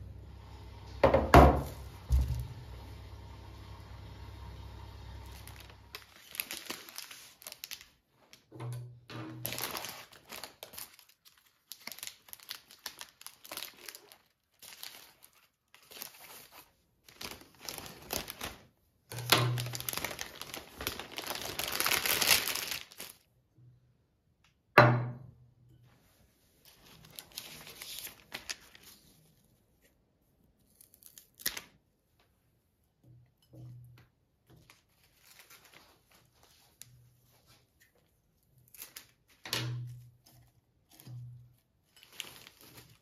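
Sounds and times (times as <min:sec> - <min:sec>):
wrapping paper crinkling: 0:05.1 - 0:08.5, 0:09.3 - 0:23.3, 0:26.6 - 0:31.8, 0:34.6 - 0:43.0.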